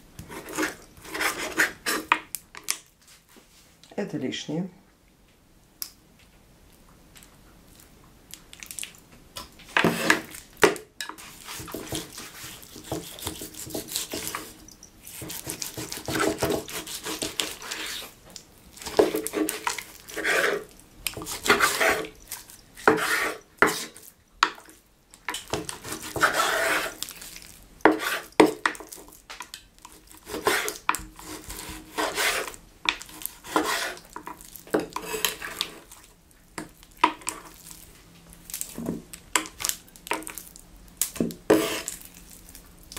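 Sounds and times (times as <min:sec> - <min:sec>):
knife sawing through meat: 0:11.5 - 0:14.5, 0:15.1 - 0:18.1, 0:19.2 - 0:20.7, 0:21.3 - 0:22.1, 0:25.8 - 0:27.0, 0:30.2 - 0:32.6, 0:33.4 - 0:34.1.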